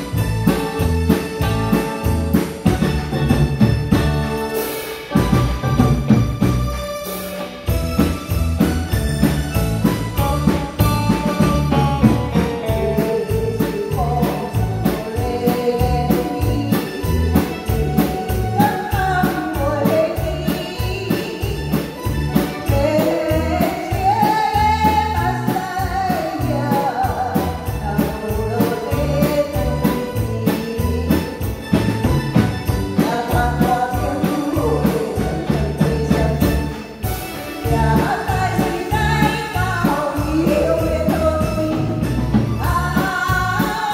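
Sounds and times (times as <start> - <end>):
live band playing: 0.0 - 43.9
steady drum beat: 0.0 - 43.9
woman singing into microphone: 10.8 - 31.8, 32.9 - 43.9.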